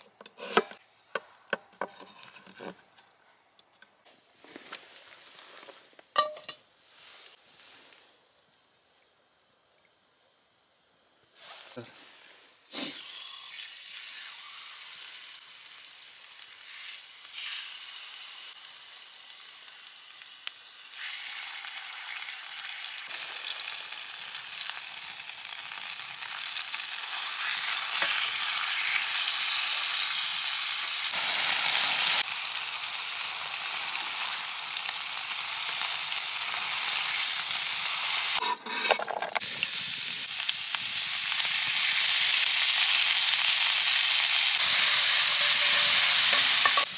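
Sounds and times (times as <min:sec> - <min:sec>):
onions sizzling in a pan: 0:06.2 - 0:46.9
meat sizzling in a frying pan: 0:13.0 - 0:38.4, 0:39.4 - 0:46.9.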